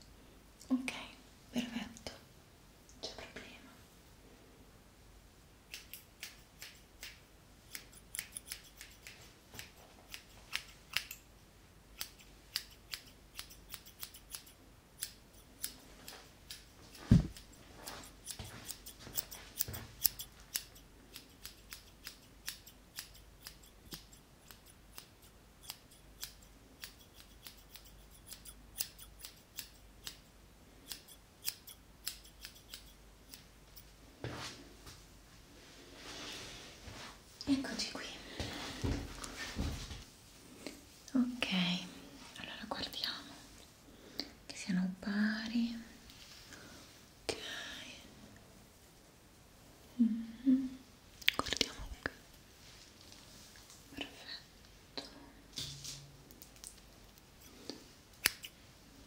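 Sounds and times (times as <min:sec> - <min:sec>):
scissors snipping hair: 0:05.7 - 0:11.3, 0:11.9 - 0:33.9, 0:57.4 - 0:58.6
loud thump: 0:17.1 - 0:17.4.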